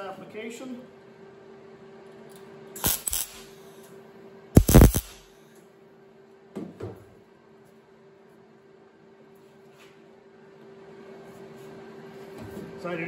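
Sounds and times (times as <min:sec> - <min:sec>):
welder crackling: 0:02.8 - 0:03.5, 0:04.6 - 0:05.2
low hum: 0:04.6 - 0:05.2.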